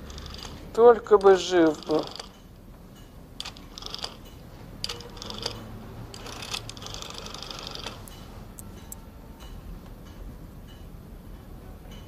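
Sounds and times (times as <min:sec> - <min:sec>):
rotary telephone dial clicking: 0:00.0 - 0:02.4, 0:03.4 - 0:08.1.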